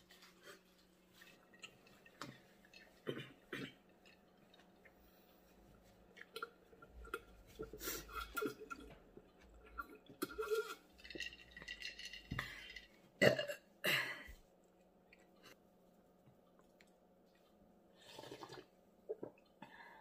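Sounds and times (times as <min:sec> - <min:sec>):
woman gulping a drink: 0:01.4 - 0:05.0, 0:06.1 - 0:13.7, 0:18.0 - 0:19.6
woman burping loudly: 0:13.2 - 0:14.1.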